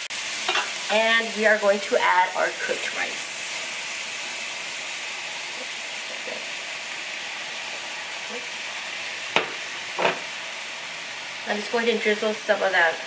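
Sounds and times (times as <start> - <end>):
food sizzling in a skillet: 0.0 - 13.0
sharp knock: 9.4 - 10.2.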